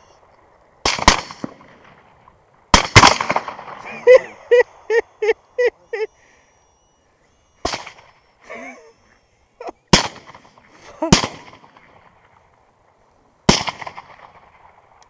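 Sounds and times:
suppressed rifle shots: 0.8s - 2.1s, 2.7s - 3.9s, 7.6s - 8.2s, 9.9s - 12.4s, 13.5s - 15.0s
brief wavering call: 3.8s - 9.9s.

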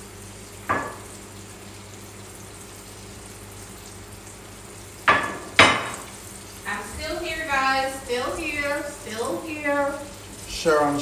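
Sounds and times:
food deep-frying in oil: 0.0s - 11.0s.

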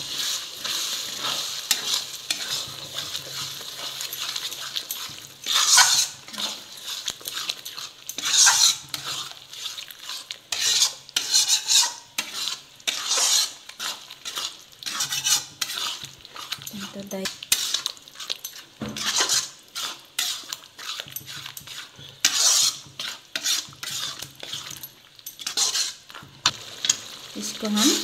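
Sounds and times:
food sizzling in oil: 0.0s - 28.0s
metal spatula scraping pan: 0.0s - 28.0s.

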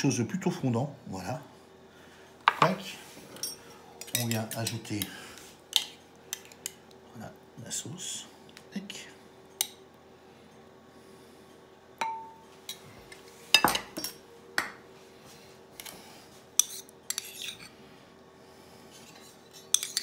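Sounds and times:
metal spoon clinking on ceramic: 12.0s - 12.4s.

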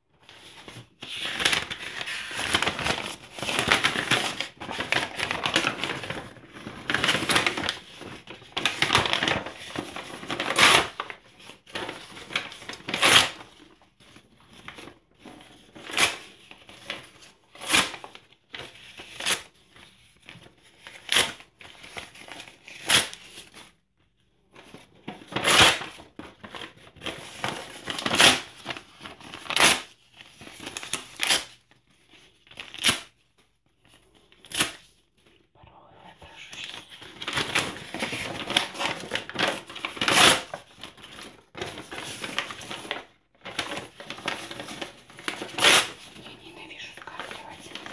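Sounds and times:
paper rustling and crinkling: 0.2s - 47.9s
paper tearing: 8.6s - 11.1s, 11.7s - 13.4s, 22.7s - 23.5s, 25.3s - 26.0s, 27.0s - 29.9s, 30.5s - 31.6s, 36.6s - 46.2s.

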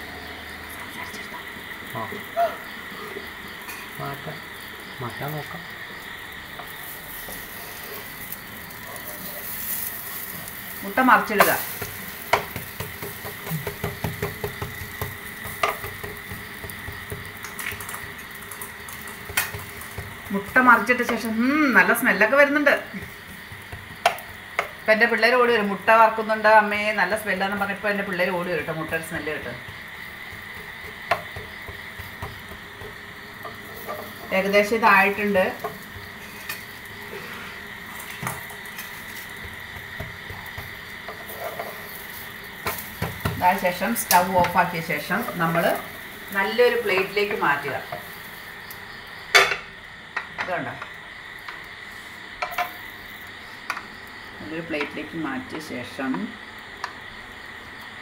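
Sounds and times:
omelette sizzling in a pan: 0.0s - 58.0s
spatula scraping and tapping a pan: 11.2s - 22.2s, 22.8s - 24.9s, 28.5s - 48.3s, 52.4s - 52.8s.

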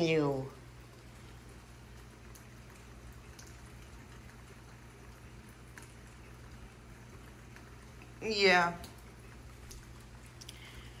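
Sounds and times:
rain hissing: 0.0s - 11.0s
faint ticks: 8.8s - 10.8s.

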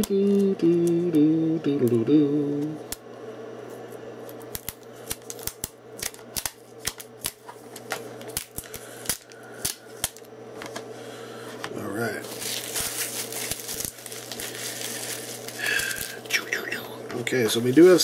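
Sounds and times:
man humming: 0.0s - 3.0s.

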